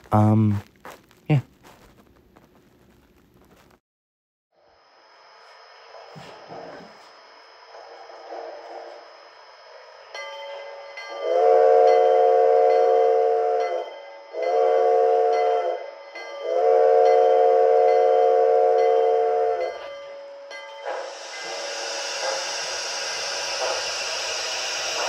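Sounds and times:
model steam locomotive whistle: 10.9 - 25.0.

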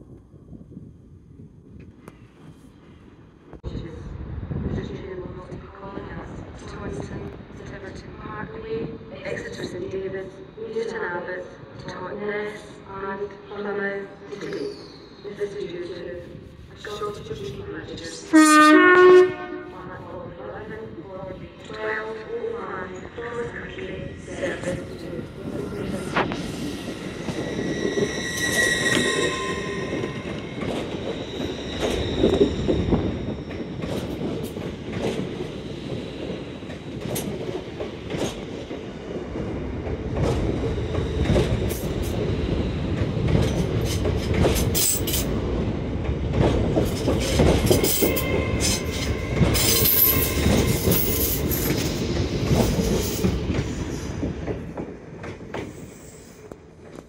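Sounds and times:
train rolling past: 1.9 - 57.0
high wheel squeal: 25.4 - 33.9, 47.2 - 53.3.

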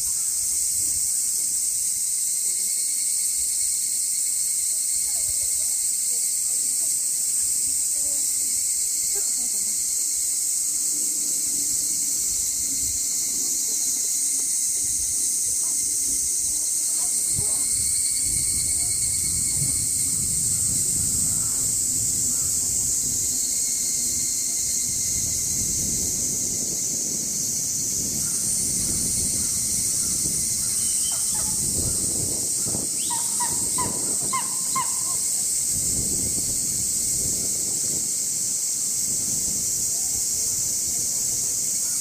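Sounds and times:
cicadas buzzing: 0.0 - 42.0
high-pitched hiss: 0.0 - 42.0
eagle calling: 30.7 - 32.0, 33.0 - 35.3.

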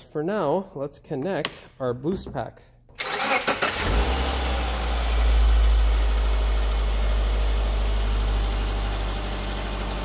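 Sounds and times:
car engine idling: 3.8 - 10.0.

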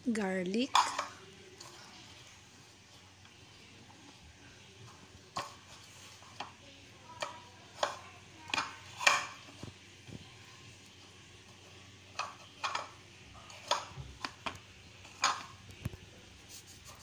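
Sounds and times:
kitchenware knocks and clicks: 7.2 - 9.7, 12.2 - 15.6.

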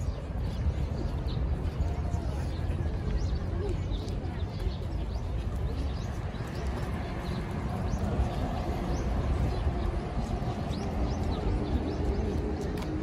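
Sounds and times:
murmur of voices: 0.0 - 13.0.

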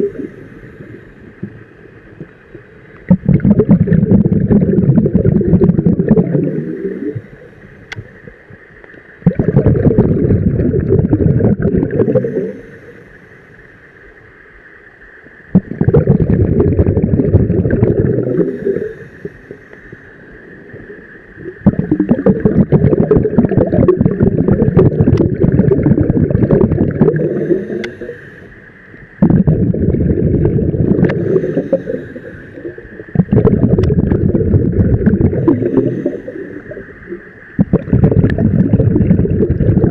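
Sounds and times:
diver's exhaled air bubbling: 0.0 - 1.6, 3.0 - 8.3, 9.2 - 13.0, 15.5 - 19.6, 21.4 - 28.6, 29.2 - 39.9
faint steady hiss: 0.0 - 39.9.

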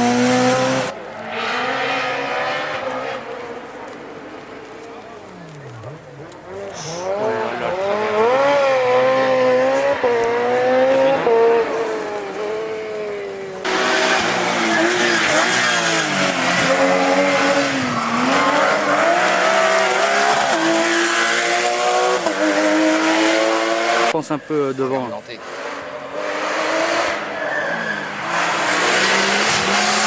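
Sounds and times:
rally car engines revving: 0.0 - 30.0
road and tyre hiss: 3.4 - 7.2
tyre squeal: 27.2 - 28.2.

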